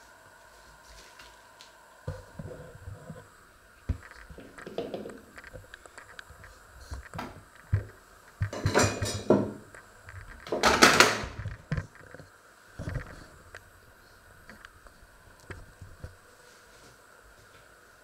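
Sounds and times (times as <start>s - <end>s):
scraping rustling noises: 15.6s - 17.7s.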